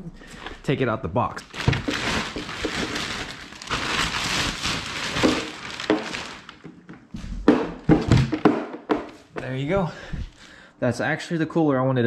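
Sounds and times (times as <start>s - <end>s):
plastic bag crinkling: 1.4s - 7.0s.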